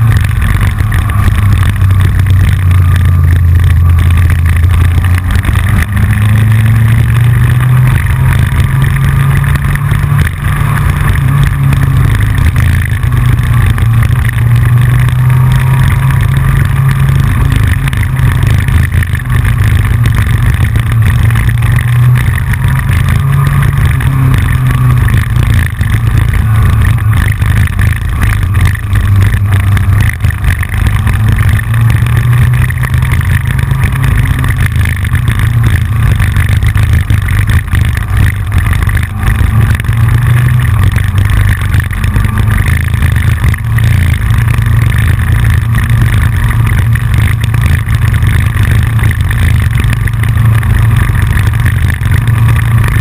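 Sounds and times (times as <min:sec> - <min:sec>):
motorcycle engine: 0:00.0 - 0:53.0
wind rumble on camera: 0:00.0 - 0:53.0.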